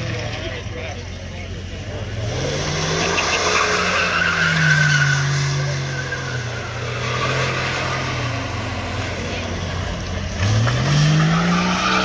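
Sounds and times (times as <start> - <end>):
car engine at high revs: 0.0 - 12.0
tires squealing on wet pavement: 2.4 - 9.4, 10.3 - 12.0.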